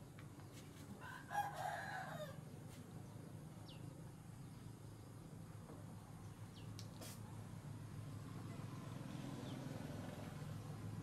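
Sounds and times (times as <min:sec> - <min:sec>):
rooster crowing: 0:01.0 - 0:02.5
faint high bird chirps: 0:03.0 - 0:05.1, 0:06.2 - 0:06.9.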